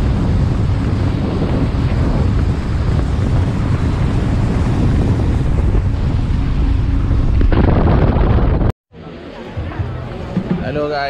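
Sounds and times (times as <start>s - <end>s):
wind buffeting microphone: 0.0s - 8.8s
speedboat engine: 0.0s - 10.3s
water noise: 0.0s - 10.6s.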